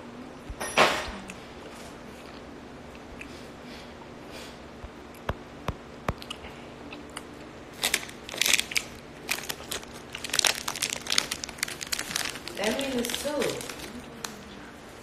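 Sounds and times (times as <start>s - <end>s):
person chewing crunchy snack: 6.2s - 12.5s.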